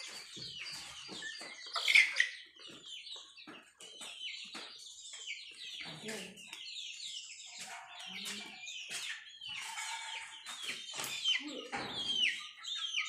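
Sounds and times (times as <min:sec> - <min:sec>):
chickens clucking and calling: 0:00.0 - 0:13.0.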